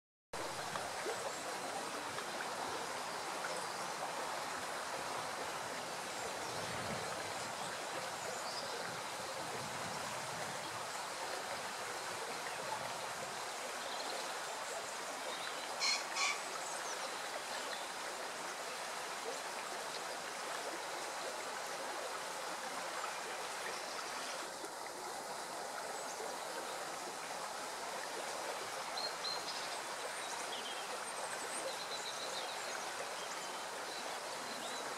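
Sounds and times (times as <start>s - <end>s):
running water rushing: 0.4s - 34.9s
faint bird sounds: 13.7s - 18.0s.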